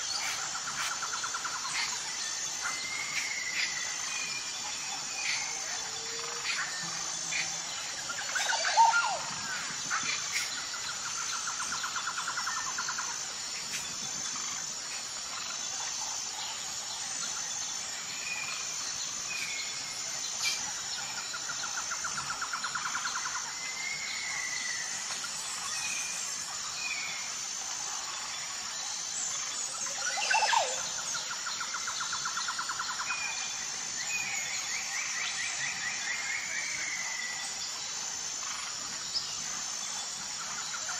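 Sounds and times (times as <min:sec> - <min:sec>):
insects chirring: 0:00.0 - 0:40.9
swooping bird calls: 0:04.7 - 0:11.0.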